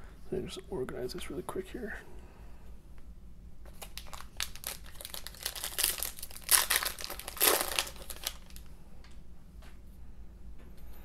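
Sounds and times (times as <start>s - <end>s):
foil pack tearing open: 3.7s - 8.7s
foil wrapper crinkling: 3.7s - 8.7s.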